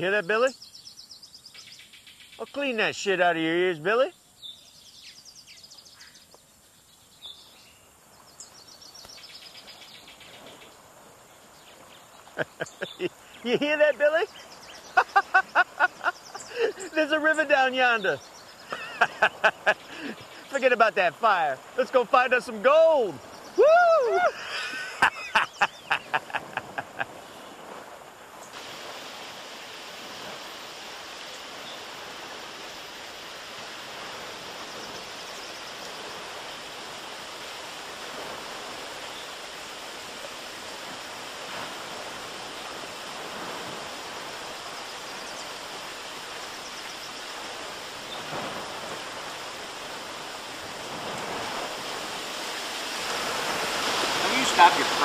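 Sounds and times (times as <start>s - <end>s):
river rushing: 8.4s - 55.0s
people whooping: 23.5s - 26.6s.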